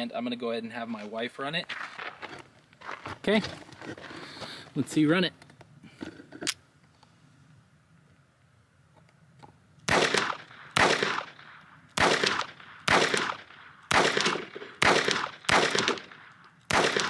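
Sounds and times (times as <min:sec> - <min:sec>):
pistol shots with echo: 0:09.9 - 0:17.0.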